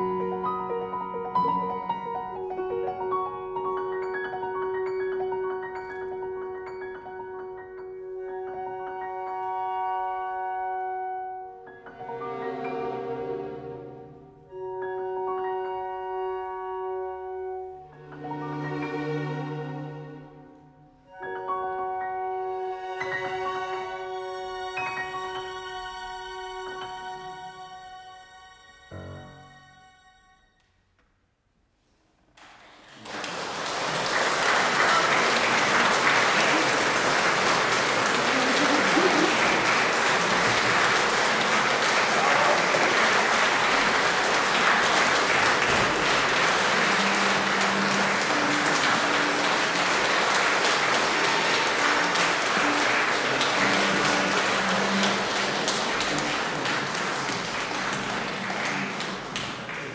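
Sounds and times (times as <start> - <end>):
audience applauding: 32.4 - 59.9.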